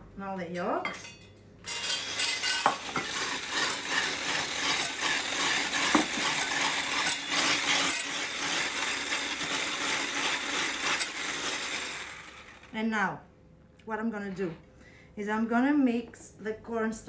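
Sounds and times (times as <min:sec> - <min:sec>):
electric whisk running: 0:01.7 - 0:12.8.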